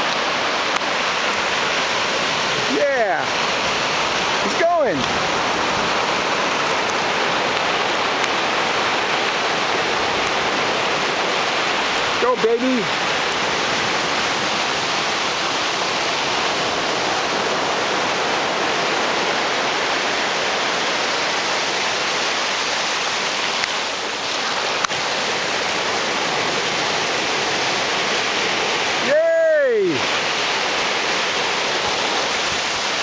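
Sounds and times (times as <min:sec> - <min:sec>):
small waves washing on shore: 0:00.0 - 0:33.0.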